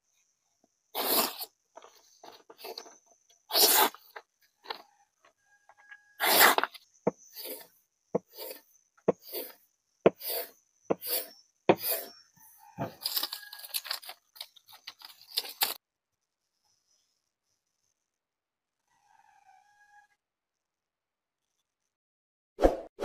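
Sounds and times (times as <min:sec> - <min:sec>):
knife slicing through paper: 0:01.0 - 0:01.5, 0:03.5 - 0:04.0, 0:06.2 - 0:06.8.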